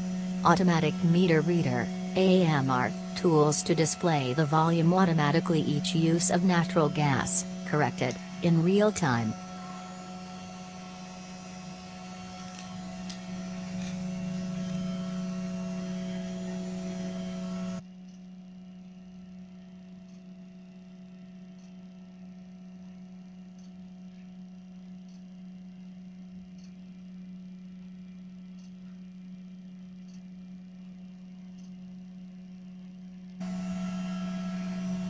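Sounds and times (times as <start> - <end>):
low hum with overtones: 0.0 - 35.0
faint ticks: 20.0 - 20.3, 21.5 - 21.8, 23.5 - 24.3, 26.5 - 26.8, 28.5 - 29.0, 31.4 - 31.8.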